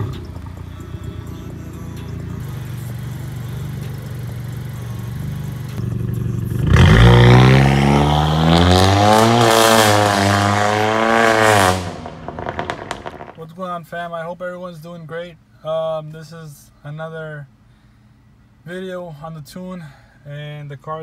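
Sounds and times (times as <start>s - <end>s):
car engine accelerating: 0.0s - 13.4s.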